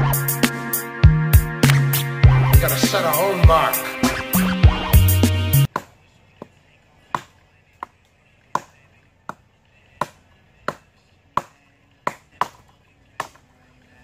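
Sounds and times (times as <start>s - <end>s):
axe chopping log: 5.7s - 13.5s.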